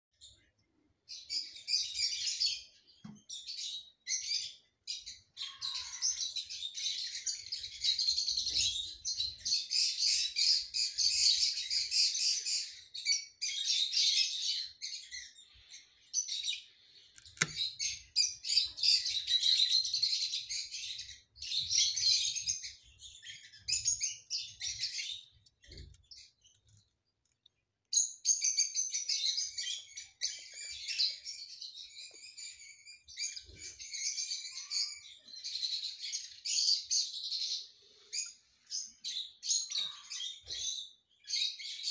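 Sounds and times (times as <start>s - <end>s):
small songbirds chirping: 0.2s - 41.9s.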